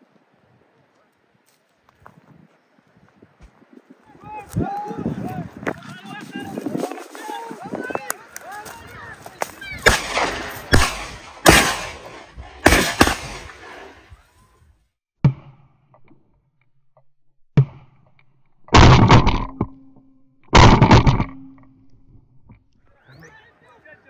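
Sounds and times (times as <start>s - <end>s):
very loud blasts: 9.6s - 14.1s
gunshots with echo: 9.8s - 14.0s.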